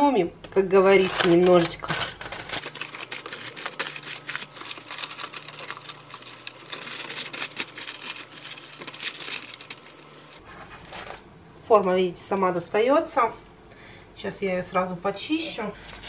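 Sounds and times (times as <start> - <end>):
low steady hum: 0.0 - 16.0
foil and paper crinkling: 1.0 - 11.2.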